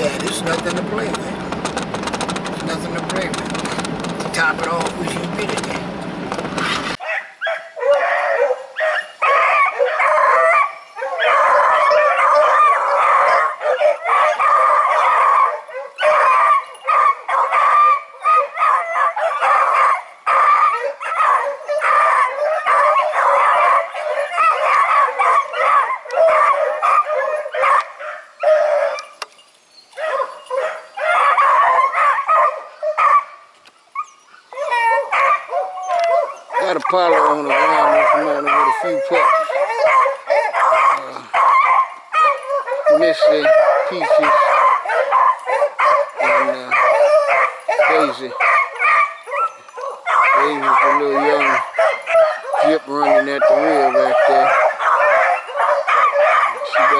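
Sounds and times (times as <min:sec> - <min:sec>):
dogs barking and howling: 0:06.9 - 0:56.9.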